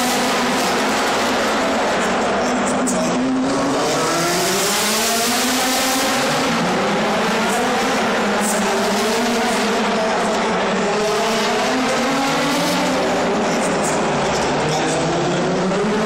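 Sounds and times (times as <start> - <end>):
race car engines accelerating: 0.0 - 16.0.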